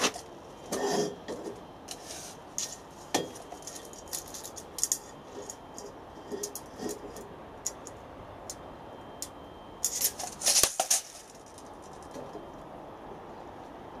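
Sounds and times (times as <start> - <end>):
metal scrape: 0.0 - 2.8.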